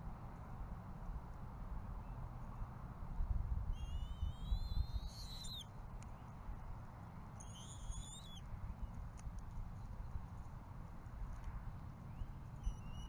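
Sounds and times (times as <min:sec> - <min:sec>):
eagle whistled calls: 0:03.8 - 0:05.6, 0:07.4 - 0:08.4, 0:12.6 - 0:13.0.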